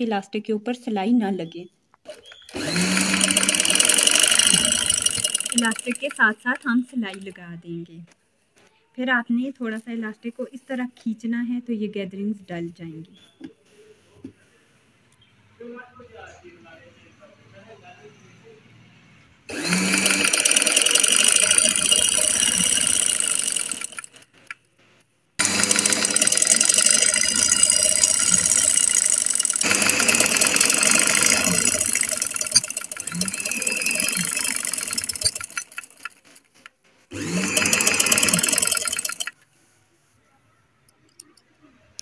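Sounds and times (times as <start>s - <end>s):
sewing machine rattling: 2.1s - 7.3s, 19.5s - 24.5s, 25.4s - 39.4s.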